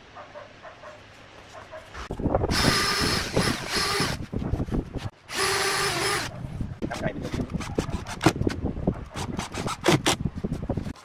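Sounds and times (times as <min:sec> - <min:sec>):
cordless drill boring into wood: 0:02.5 - 0:04.2, 0:05.3 - 0:06.3.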